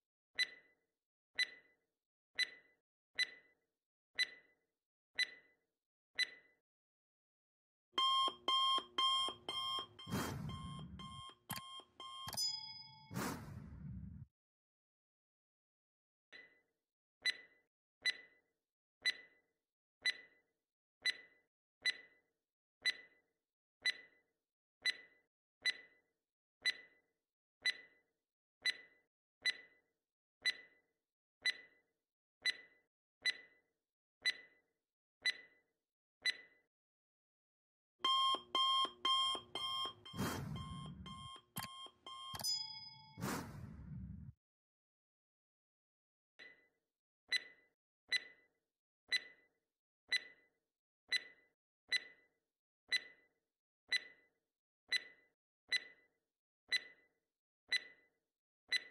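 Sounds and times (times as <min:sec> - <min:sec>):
alarm clock ringing: 0:08.0 - 0:13.4, 0:38.0 - 0:43.6
clock ticking: 0:08.0 - 0:13.6, 0:38.0 - 0:43.7.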